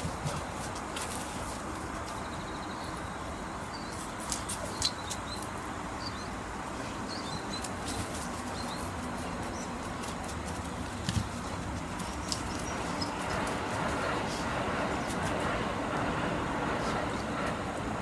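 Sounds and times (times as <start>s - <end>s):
steady outdoor hiss: 0.0s - 18.0s
dog claws clicking on concrete: 9.8s - 13.8s.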